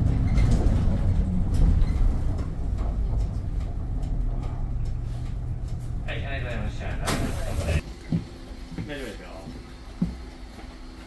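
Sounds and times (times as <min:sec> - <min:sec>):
bus engine and road rumble: 0:00.0 - 0:07.9.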